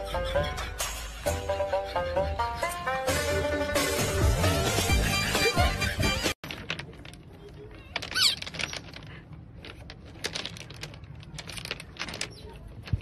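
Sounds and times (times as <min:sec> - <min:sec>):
stones clicking and clacking: 0:06.4 - 0:13.0.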